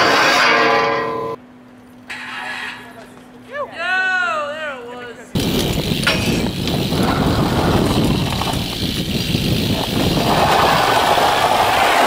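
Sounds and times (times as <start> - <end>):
bike wheels scraping on concrete: 2.1 - 3.3, 5.4 - 12.0.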